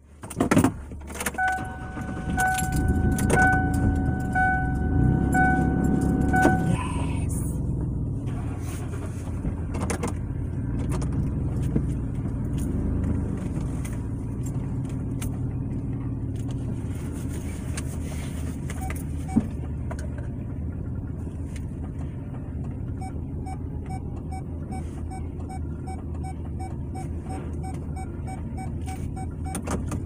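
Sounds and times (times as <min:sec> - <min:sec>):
car engine rumble: 0:00.0 - 0:30.0
two-tone car warning chime: 0:01.3 - 0:07.2.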